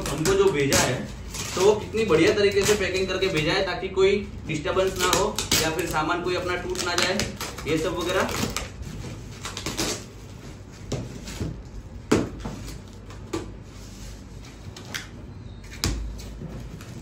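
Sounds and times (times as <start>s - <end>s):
scissors cutting tape and cardboard: 0.0s - 3.5s, 4.8s - 8.7s
plastic wrap crinkling: 4.5s - 10.7s.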